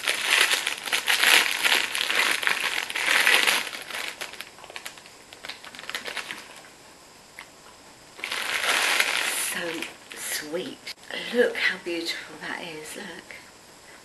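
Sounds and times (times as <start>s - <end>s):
cellophane bag crinkling: 0.0s - 6.7s, 8.2s - 10.1s.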